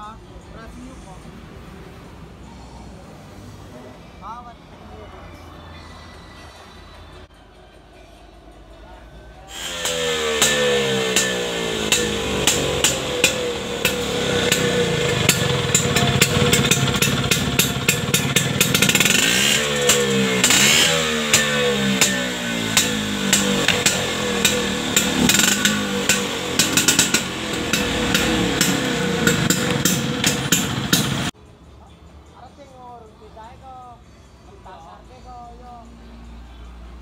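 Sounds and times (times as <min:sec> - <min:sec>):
scooter engine revving: 0:09.5 - 0:31.4.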